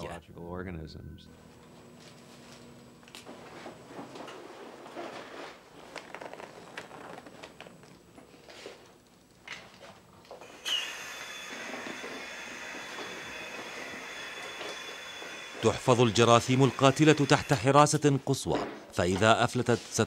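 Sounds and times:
plastic suit rustling: 0:03.3 - 0:07.6
air hissing with high whistle: 0:10.4 - 0:18.1.

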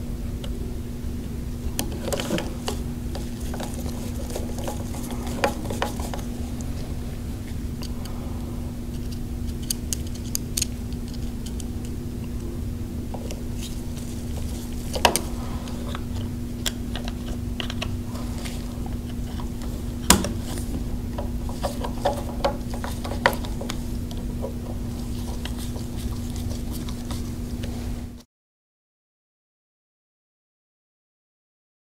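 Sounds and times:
steady low hum: 0:00.0 - 0:28.2.

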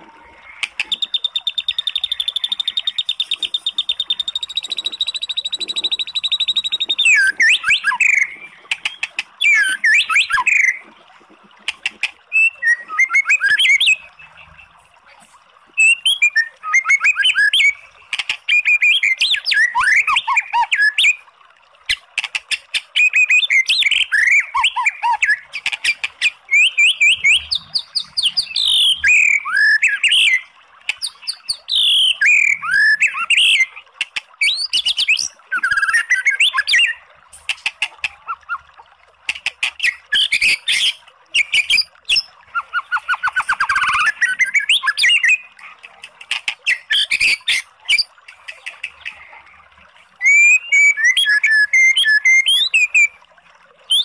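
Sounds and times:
bird singing whistled phrases: 0:00.8 - 0:10.8, 0:12.3 - 0:14.1, 0:15.8 - 0:17.8, 0:23.0 - 0:25.4, 0:26.5 - 0:30.4, 0:31.0 - 0:33.7, 0:34.4 - 0:37.0, 0:39.8 - 0:45.5, 0:50.2 - 0:53.2.

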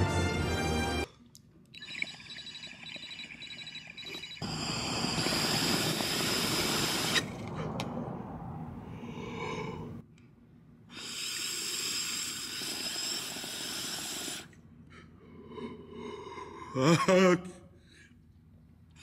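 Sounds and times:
air hissing through water pipe: 0:04.4 - 0:07.9, 0:10.9 - 0:14.6.

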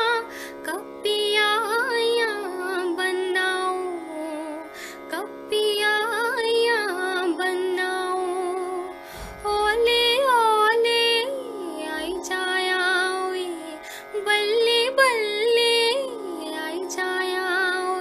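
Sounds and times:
woman singing folk song: 0:00.0 - 0:18.0
steady drone accompaniment: 0:09.0 - 0:14.2.

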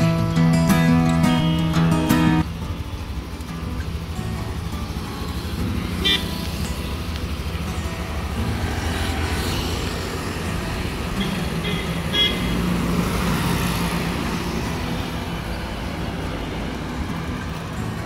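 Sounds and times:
rumble of passing vehicles: 0:00.0 - 0:18.0
car horn toots: 0:06.0 - 0:06.4, 0:11.2 - 0:12.6.

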